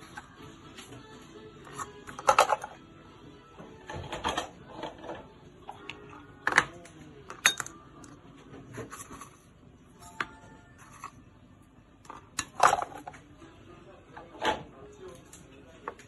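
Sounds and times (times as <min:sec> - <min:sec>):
spoon and glassware clinking: 0:07.3 - 0:07.7.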